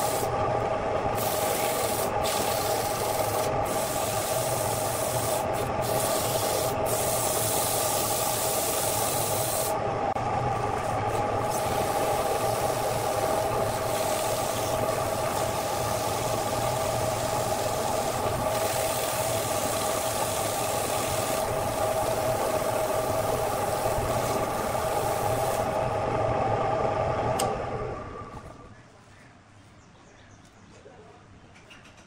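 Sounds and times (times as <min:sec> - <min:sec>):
sandpaper hissing on spinning wood: 0:01.1 - 0:09.8, 0:10.9 - 0:25.8
wood lathe humming and whining: 0:09.7 - 0:28.4
lathe switch click: 0:27.4 - 0:27.6.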